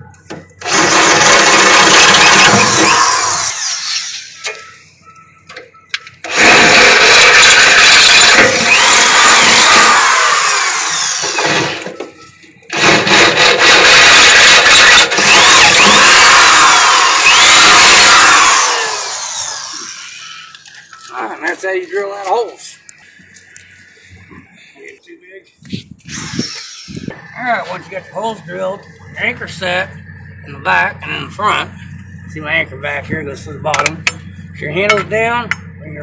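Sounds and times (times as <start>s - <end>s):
electric drill boring through steel: 0.6s - 4.5s, 6.2s - 12.0s, 12.7s - 20.7s, 26.1s - 27.9s.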